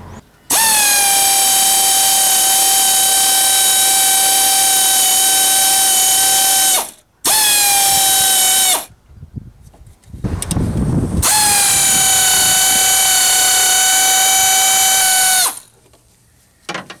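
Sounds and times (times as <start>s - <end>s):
air ratchet whining: 0.5s - 8.9s, 10.3s - 15.7s.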